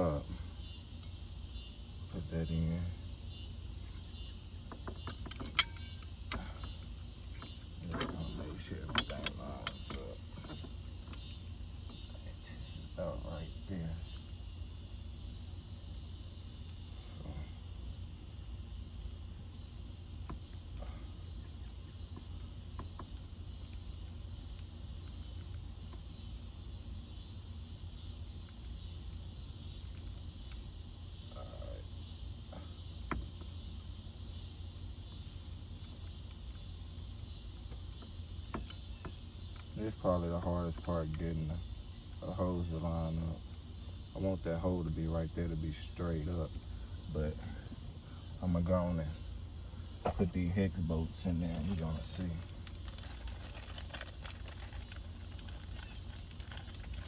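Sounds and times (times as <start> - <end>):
crickets chirping: 0.0 - 57.0
small parts and tools clicking: 4.7 - 12.2, 51.6 - 57.0.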